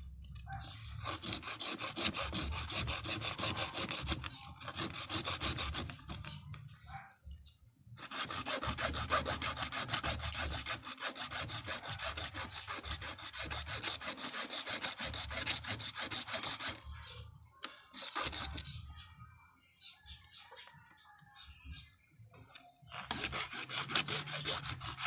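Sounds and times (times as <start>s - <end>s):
hacksaw blade sawing: 0.8s - 6.3s, 8.0s - 16.9s, 17.9s - 18.8s, 22.9s - 25.0s.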